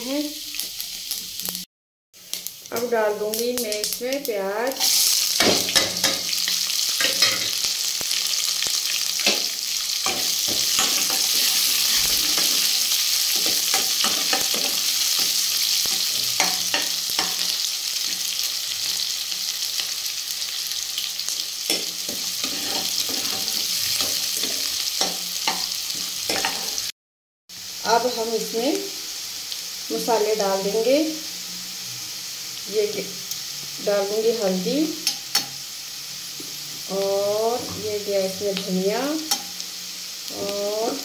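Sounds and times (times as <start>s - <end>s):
onions sizzling in oil: 0.0s - 26.9s, 27.5s - 41.0s
ladle scraping a pan: 22.4s - 24.6s.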